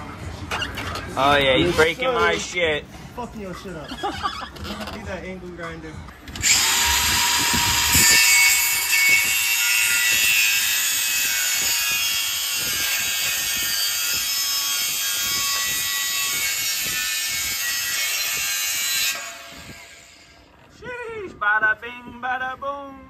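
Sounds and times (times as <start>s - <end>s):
angle grinder cutting metal pipe: 6.3s - 20.5s.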